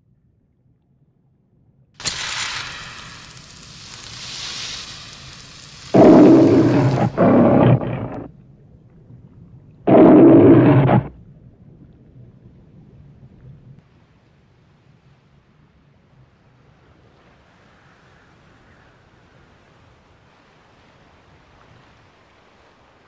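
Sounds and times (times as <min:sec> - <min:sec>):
rush of hiss: 0:02.0 - 0:08.3
lion roaring: 0:06.0 - 0:08.3, 0:09.9 - 0:11.2.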